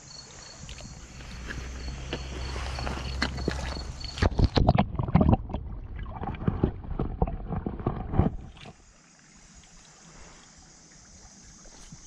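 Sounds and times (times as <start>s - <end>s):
faint hiss of flowing stream: 0.0s - 4.4s, 8.5s - 12.0s
water splashing at microphone: 0.5s - 12.0s.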